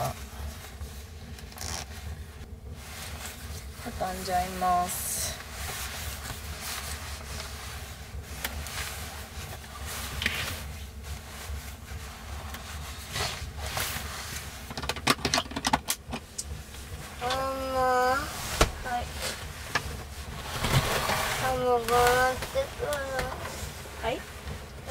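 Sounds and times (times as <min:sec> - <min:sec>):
steady low rumble: 0:15.6 - 0:24.9
sleeping bag rustling: 0:16.6 - 0:24.9.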